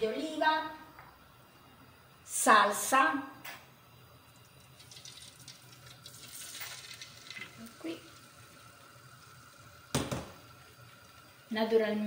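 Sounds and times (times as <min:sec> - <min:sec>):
sharp knock: 0:09.9 - 0:10.3.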